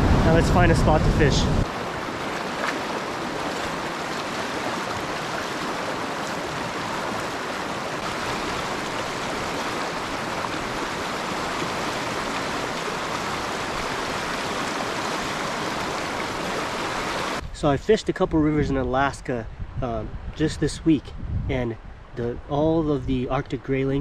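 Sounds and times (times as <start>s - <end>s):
river rushing over rocks: 0.0s - 17.4s.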